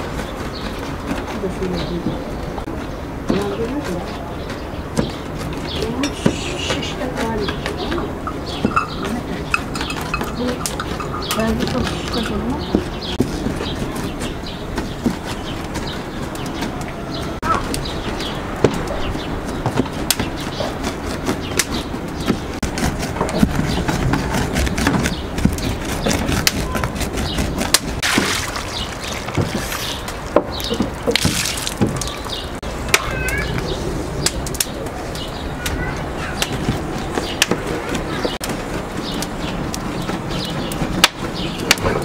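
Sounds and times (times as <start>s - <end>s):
birds chirping: 0.0s - 42.0s.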